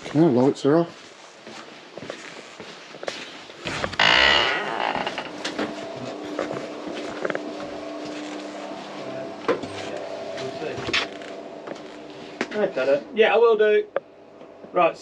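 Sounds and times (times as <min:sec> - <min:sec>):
wooden door scraping open: 0:03.6 - 0:05.8
low hum: 0:03.7 - 0:14.8.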